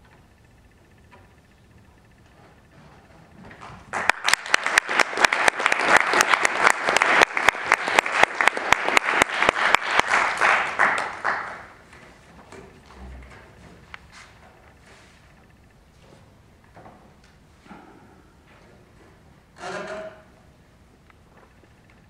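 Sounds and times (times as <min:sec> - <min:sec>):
audience applauding: 0:03.9 - 0:11.9.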